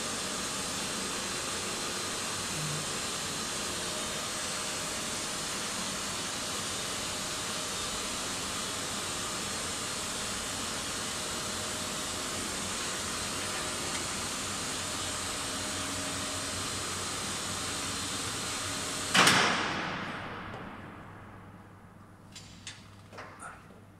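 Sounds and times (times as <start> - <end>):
service lift hissing and humming: 0.0 - 22.8
loud metal clunk: 19.1 - 21.4.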